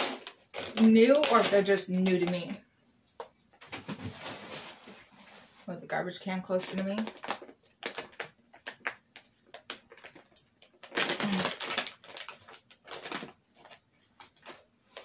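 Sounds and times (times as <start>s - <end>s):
plastic bag tearing: 0.0s - 2.5s, 6.6s - 13.8s
plastic bag crinkling: 0.0s - 2.6s, 3.6s - 5.7s, 6.4s - 15.0s.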